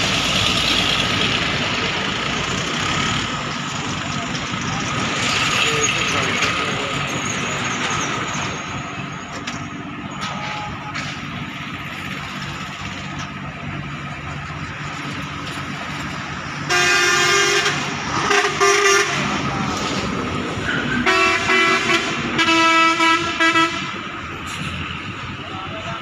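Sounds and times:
low engine hum: 0:00.0 - 0:26.0
vehicle horn: 0:16.7 - 0:19.4, 0:20.9 - 0:24.0.

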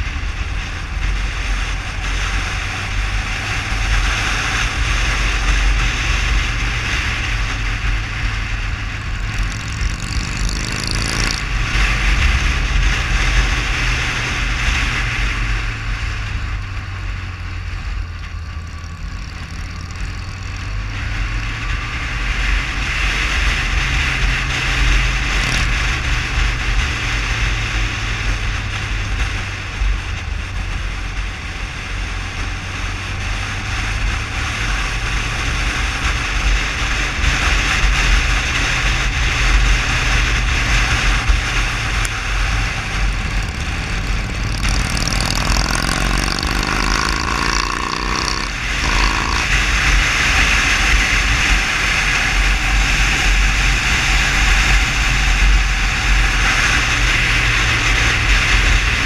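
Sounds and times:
motorcycle engine running: 0:00.0 - 0:59.0
wind rushing over microphone: 0:00.0 - 0:59.0
rising tone: 0:42.5 - 0:49.7.

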